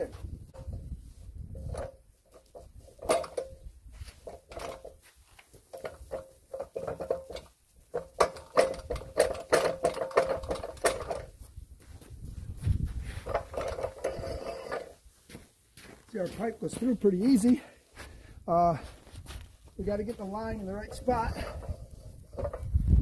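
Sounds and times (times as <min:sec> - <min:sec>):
metal pipe clicking and scraping: 0:00.5 - 0:11.5, 0:13.2 - 0:15.0, 0:19.4 - 0:22.9.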